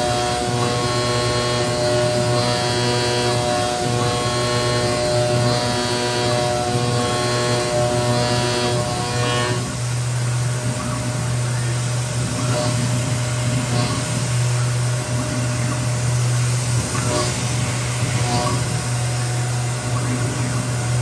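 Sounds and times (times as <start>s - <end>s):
milling machine cutting metal: 0.0s - 21.0s
steady low hum: 0.0s - 21.0s.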